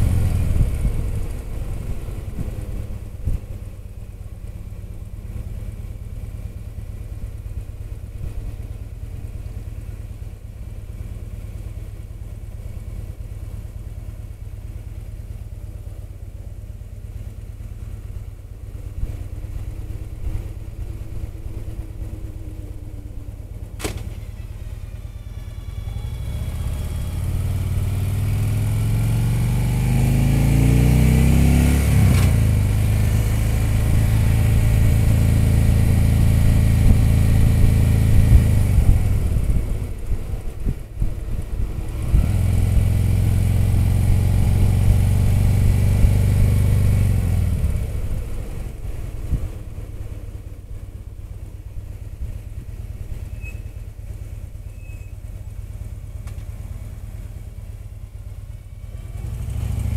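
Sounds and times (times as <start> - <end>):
wind noise: 0.0 - 3.7, 33.7 - 43.0
motorcycle engine running: 0.0 - 59.9
sharp click: 23.8 - 24.1.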